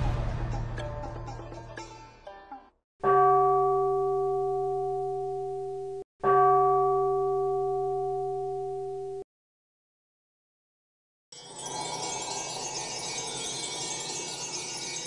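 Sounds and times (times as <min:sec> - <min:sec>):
metal bell tone ringing: 0:11.4 - 0:15.0.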